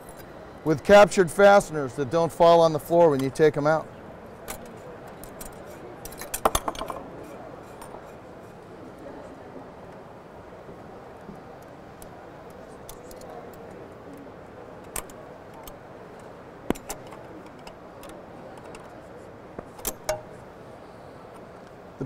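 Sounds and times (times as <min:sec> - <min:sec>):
background hubbub: 0:00.0 - 0:22.0
sharp metal clicks: 0:14.8 - 0:18.9, 0:19.6 - 0:20.4.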